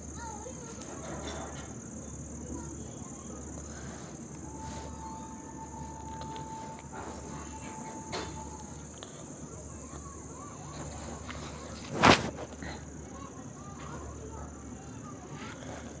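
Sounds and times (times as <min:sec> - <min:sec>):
crickets chirring: 0:00.0 - 0:16.0.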